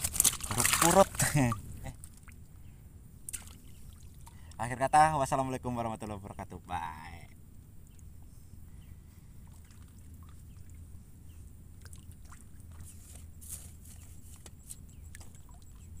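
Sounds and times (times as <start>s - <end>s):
water drips and splashes: 0.0s - 2.5s, 3.3s - 4.6s, 9.4s - 10.8s, 11.8s - 13.0s, 15.1s - 15.8s
water sloshing: 0.0s - 2.5s, 3.3s - 4.6s, 9.4s - 10.9s, 11.7s - 16.0s
low steady rumble: 0.0s - 16.0s.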